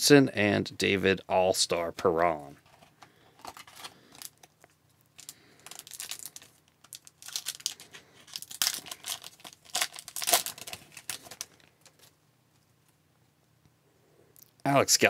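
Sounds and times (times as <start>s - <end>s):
foil wrapper crinkling and tearing: 3.4s - 12.2s.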